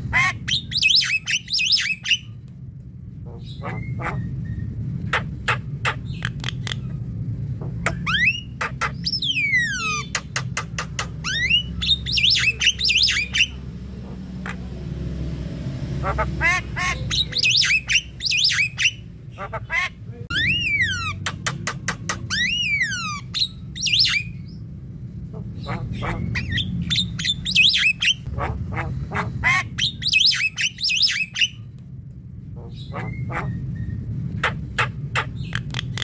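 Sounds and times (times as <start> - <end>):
bird song with clicks and whistles: 0.5 - 2.4, 7.8 - 13.6, 29.8 - 31.7.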